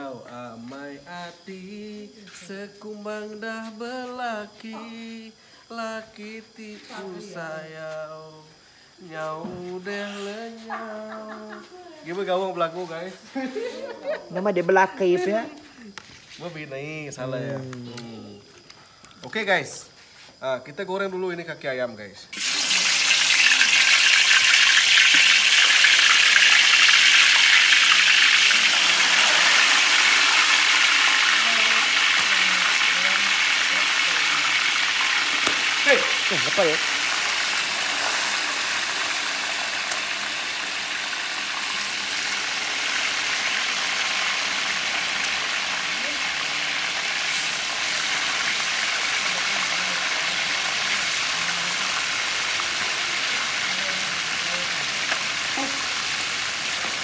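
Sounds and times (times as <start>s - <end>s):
food deep-frying in oil: 22.3s - 57.0s.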